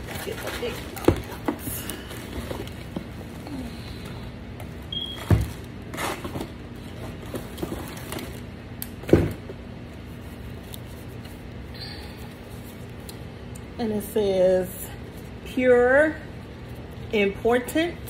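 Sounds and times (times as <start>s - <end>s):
paper and cardboard rustling: 0.0s - 3.4s, 5.2s - 8.5s.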